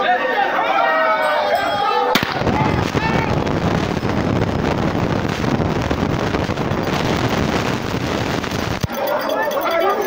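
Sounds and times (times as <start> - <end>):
faint crowd voices: 0.0 - 5.0, 8.8 - 10.0
wind buffeting microphone: 2.2 - 8.9.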